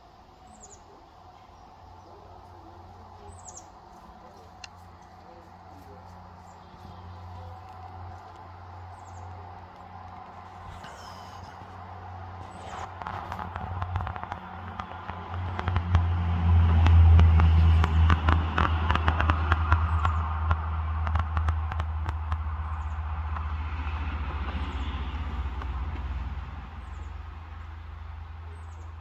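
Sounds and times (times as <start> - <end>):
low mechanical rumble: 0.0 - 29.0
sharp crackles and clicks: 7.2 - 27.8.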